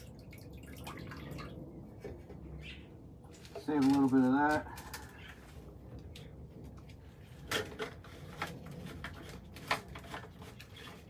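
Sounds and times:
low steady hum: 0.0 - 11.0
plastic bottles clattering: 7.4 - 11.0.

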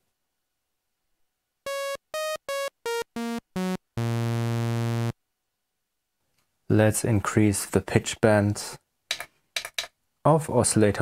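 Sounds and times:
buzzy sawtooth synthesizer notes: 1.7 - 5.2.

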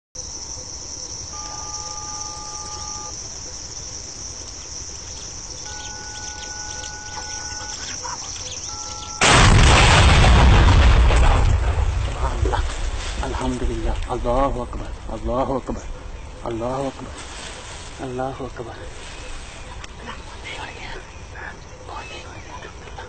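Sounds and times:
insect drone: 0.2 - 23.0
loud explosion roar: 9.2 - 13.3.

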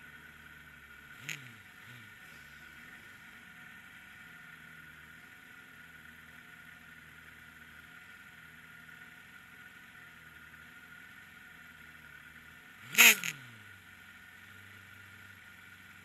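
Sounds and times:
faint steady hum: 0.0 - 6.0
racing motorcycle passing by: 1.1 - 3.4, 12.8 - 13.8.

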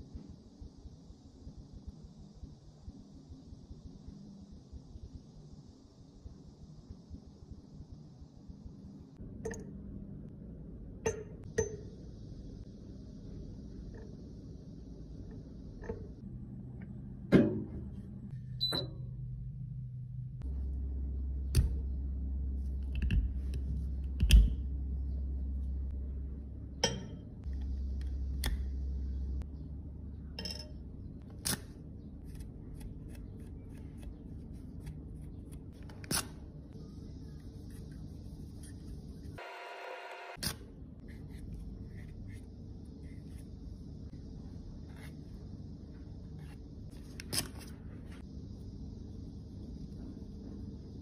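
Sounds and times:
low steady hum: 0.0 - 51.0
metal tools tapping glass: 26.8 - 27.2.

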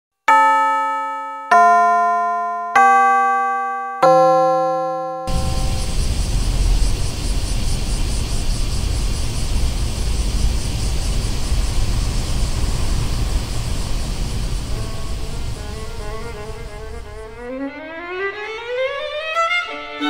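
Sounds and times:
loud low rumbling noise: 5.3 - 17.5.

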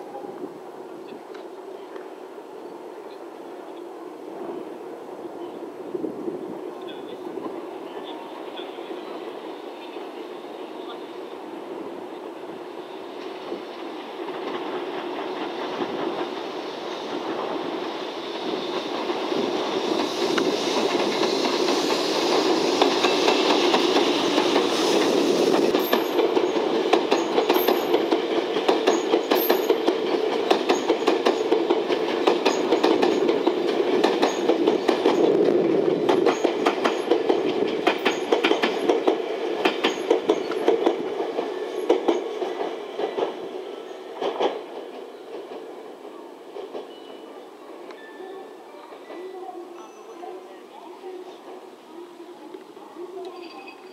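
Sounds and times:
train rumble: 0.0 - 53.9
wheels clacking over rail joints: 18.7 - 43.5.

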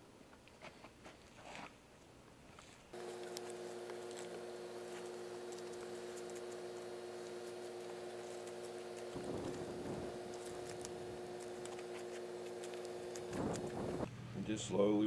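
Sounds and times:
scalpel cutting hide: 3.0 - 14.1
steady multi-pitch hum: 3.0 - 15.0.

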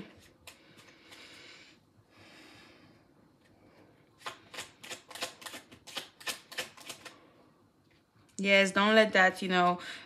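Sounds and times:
crisp card snaps: 4.2 - 7.2.

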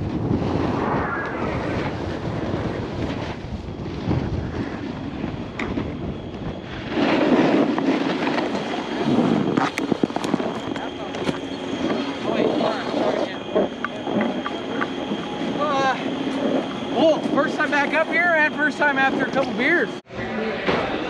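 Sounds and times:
snowboard scraping on snow: 0.0 - 5.3, 6.6 - 10.6
wind buffeting microphone: 0.0 - 20.0.

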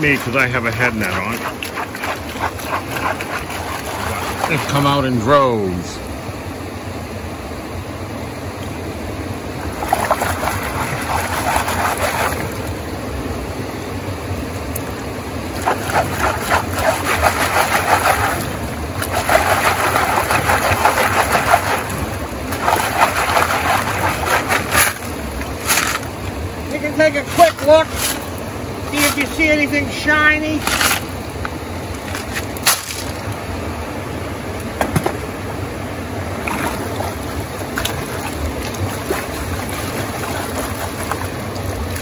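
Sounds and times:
water and gravel sloshing in pan: 0.0 - 5.6, 9.6 - 12.7, 15.5 - 29.6, 36.3 - 42.0
river rushing: 0.0 - 42.0.

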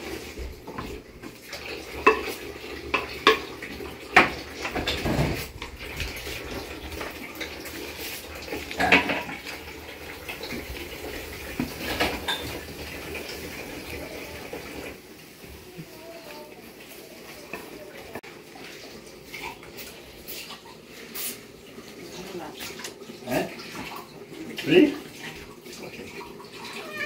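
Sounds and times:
dishes and utensils clattering: 0.0 - 15.0.

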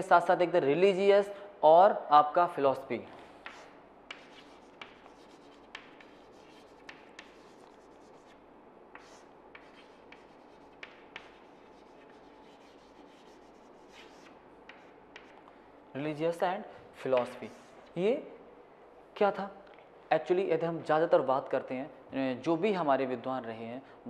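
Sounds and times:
chalk scratching on chalkboard: 3.4 - 15.4, 17.2 - 17.8
chalk tapping: 3.4 - 15.4, 17.1 - 17.8.

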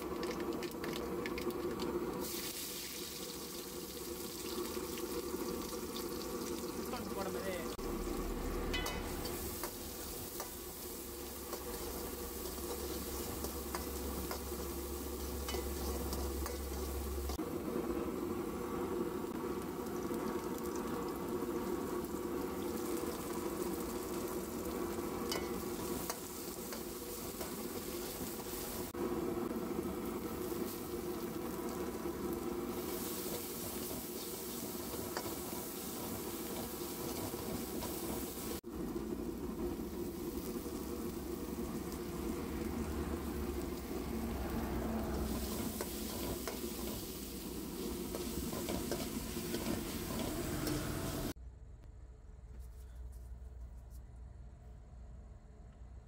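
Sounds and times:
shallots sizzling in oil: 0.0 - 51.4
metal spoon scraping a pan: 8.7 - 10.7, 11.4 - 17.0, 25.2 - 28.7, 45.3 - 51.2.

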